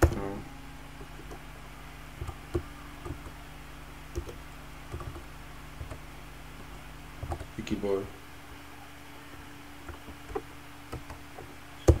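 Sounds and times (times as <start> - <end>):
steady low hum: 0.0 - 12.0
computer keyboard keystrokes: 4.1 - 5.2, 9.8 - 12.0.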